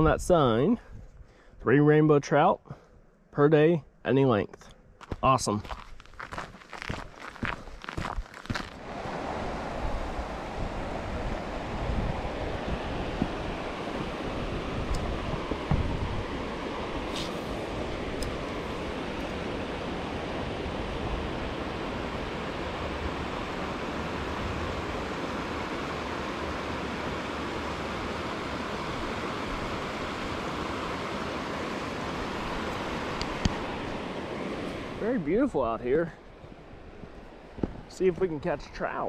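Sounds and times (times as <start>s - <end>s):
river water rushing over rapids: 8.8s - 35.0s.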